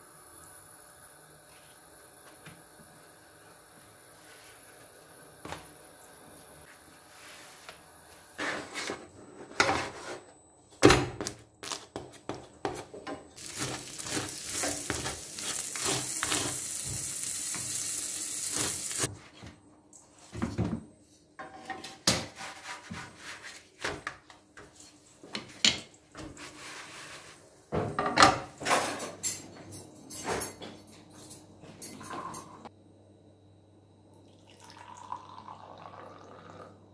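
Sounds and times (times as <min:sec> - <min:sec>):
flatbread sizzling in a pan: 0:13.4 - 0:19.1
pan and dishes clattering: 0:27.7 - 0:32.6.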